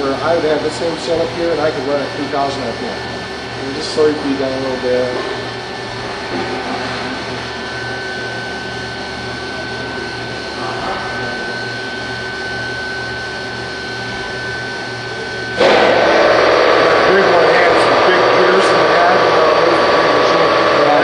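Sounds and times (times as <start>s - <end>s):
machine hum with high whine: 0.0s - 21.0s
loud rushing noise: 15.6s - 21.0s.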